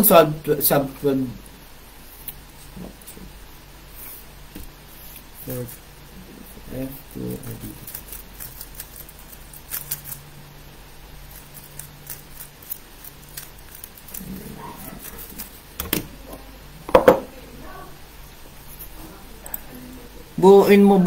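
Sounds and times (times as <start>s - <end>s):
loud knock: 16.9s - 17.3s.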